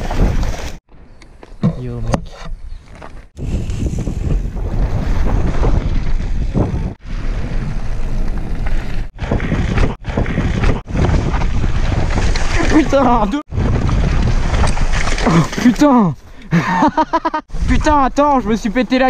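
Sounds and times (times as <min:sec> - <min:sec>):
tyres rumbling over dirt trail: 0:01.5 - 0:16.1
wind buffeting microphone: 0:02.6 - 0:15.3.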